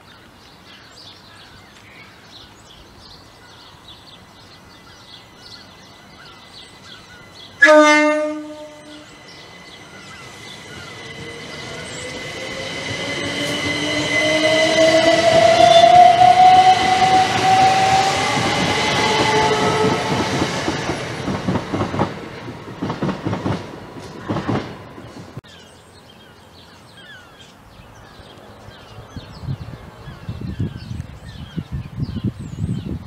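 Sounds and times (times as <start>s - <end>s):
birds chirping faintly: 0.0s - 7.6s, 8.2s - 14.2s
passenger train passing: 2.3s - 33.0s
train wheels clacking on rail joints: 9.2s - 25.4s.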